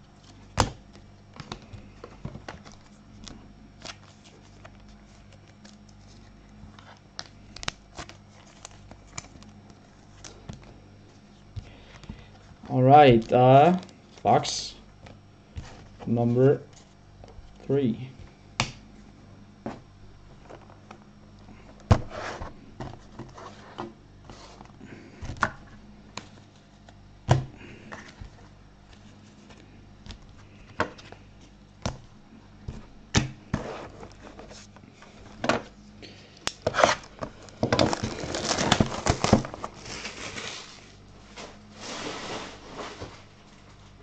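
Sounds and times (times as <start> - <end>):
wrapping crinkling and tearing: 0.1 - 12.6, 36.5 - 43.0.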